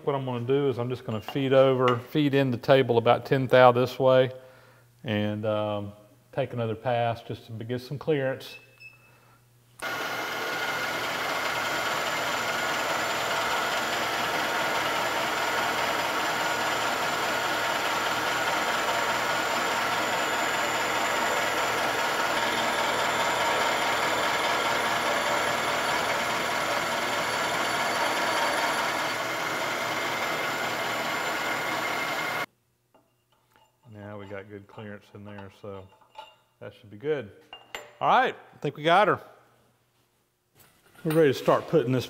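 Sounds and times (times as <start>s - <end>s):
milling machine cutting: 9.8s - 32.5s.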